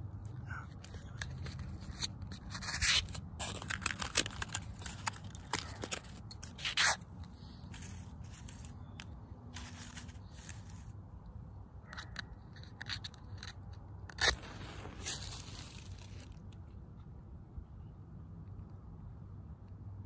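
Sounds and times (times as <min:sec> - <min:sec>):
match striking matchbox: 0:00.7 - 0:11.0, 0:11.9 - 0:16.6
match flaring hiss: 0:14.2 - 0:16.4.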